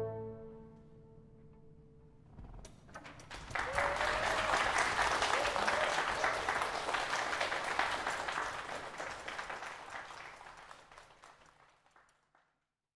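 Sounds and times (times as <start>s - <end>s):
audience applauding: 3.0s - 12.5s.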